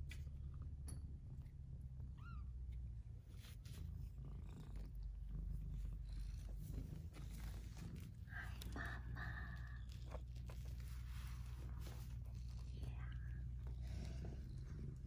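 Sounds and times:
cat purring: 0:00.1 - 0:15.0
kittens scuffling on blankets: 0:03.1 - 0:04.2, 0:06.3 - 0:15.0.

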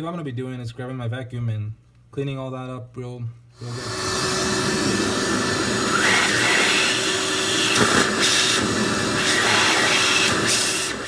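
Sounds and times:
vacuum cleaner running: 0:03.6 - 0:11.0.

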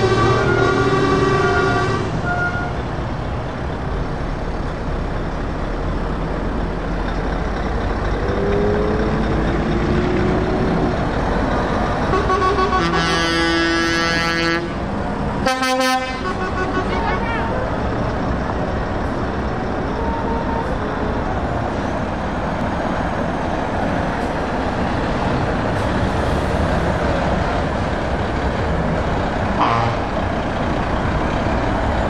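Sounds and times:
truck air horn: 0:00.0 - 0:02.8, 0:12.0 - 0:17.7, 0:20.0 - 0:21.1, 0:29.6 - 0:30.2
truck engine running: 0:00.0 - 0:32.0.

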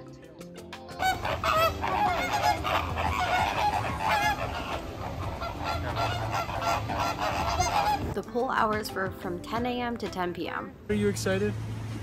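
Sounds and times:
flamingos honking: 0:01.0 - 0:08.2.

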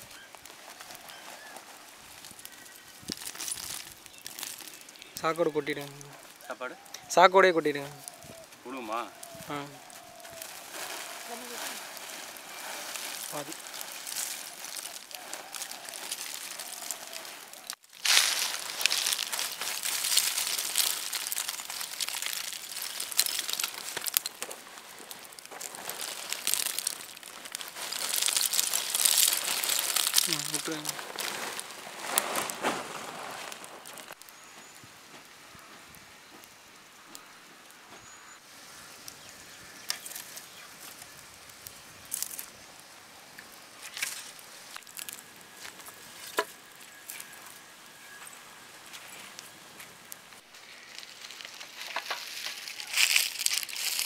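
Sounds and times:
fire crackling and popping: 0:00.0 - 0:54.0
fire hissing: 0:00.4 - 0:34.2.

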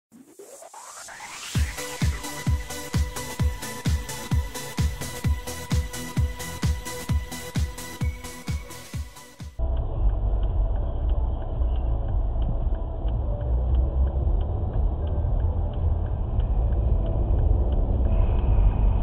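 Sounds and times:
car engine and tyre noise: 0:09.6 - 0:19.0.

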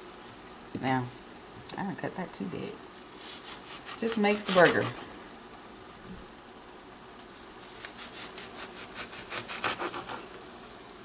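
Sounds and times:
knife slicing onion on board: 0:03.2 - 0:05.0, 0:07.8 - 0:10.2.

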